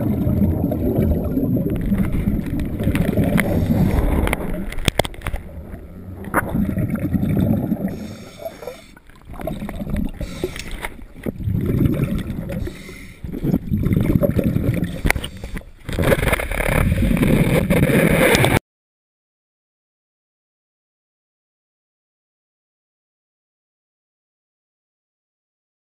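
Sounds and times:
muffled underwater bubbling: 0:00.0 - 0:18.6.

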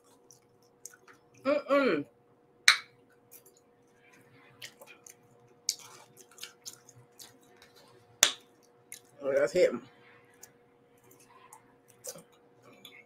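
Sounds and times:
person chewing food: 0:00.0 - 0:01.4, 0:03.0 - 0:09.2, 0:10.3 - 0:13.0.

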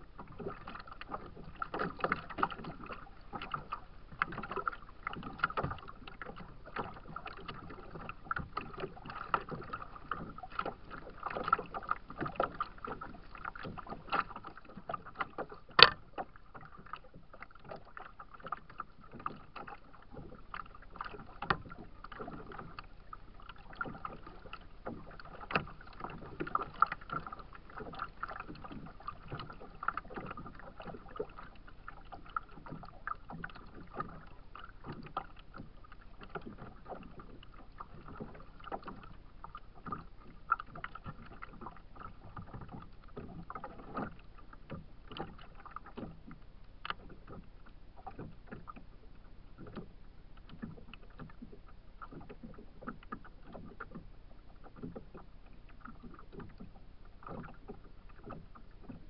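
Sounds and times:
water lapping against plastic hull: 0:00.0 - 0:59.0
sharp knock on hull: 0:15.8 - 0:16.0.

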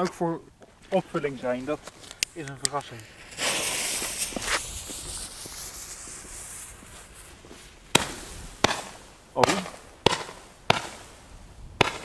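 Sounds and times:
light footsteps: 0:00.0 - 0:09.1
firework fuse hissing: 0:01.4 - 0:12.0
firework bang: 0:02.8 - 0:11.2, 0:11.8 - 0:12.0.

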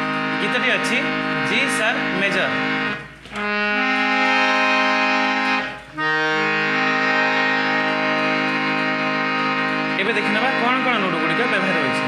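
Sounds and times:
harmonium chords: 0:00.0 - 0:12.0.

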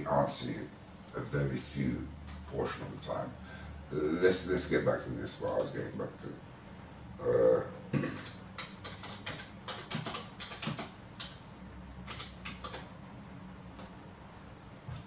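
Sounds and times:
typing on a keyboard: 0:08.6 - 0:11.4, 0:12.0 - 0:12.9.

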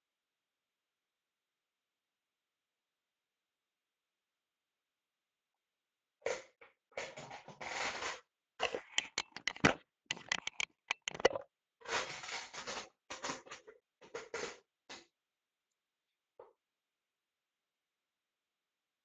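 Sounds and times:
book pages and cover rustling: 0:07.0 - 0:13.6
sharp clicks: 0:08.6 - 0:11.4.

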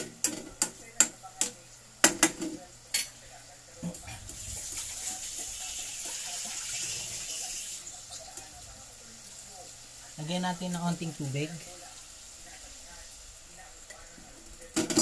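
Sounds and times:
steady frying hiss: 0:00.0 - 0:15.0.

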